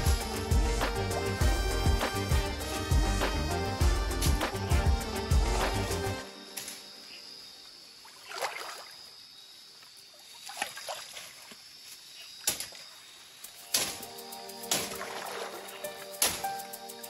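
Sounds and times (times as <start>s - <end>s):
boots splashing through stream: 8.0s - 9.0s, 10.3s - 12.9s, 14.7s - 16.4s.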